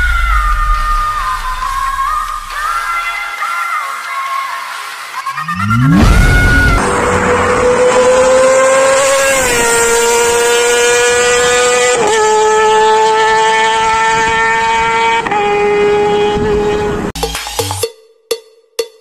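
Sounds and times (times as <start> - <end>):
motorcycle engine revving high: 5.4 - 17.1.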